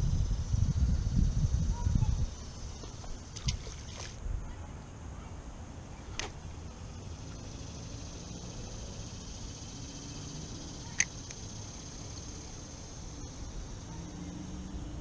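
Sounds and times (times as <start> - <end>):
insects chirring: 0.0 - 4.2, 5.8 - 15.0
sharp click: 10.9 - 11.4.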